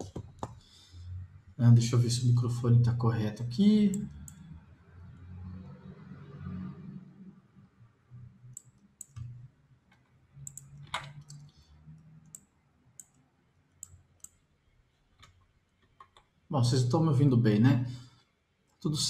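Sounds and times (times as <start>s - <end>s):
faint low hum: 0.0s - 19.0s
mouse and keyboard clicks: 8.5s - 11.5s.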